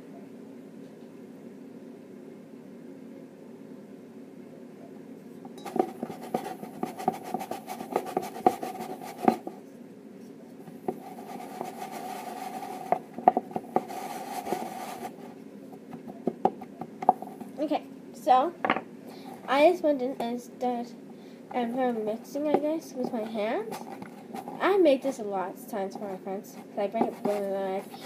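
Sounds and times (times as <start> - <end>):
spoon scraping metal bowl: 5.6 - 9.4.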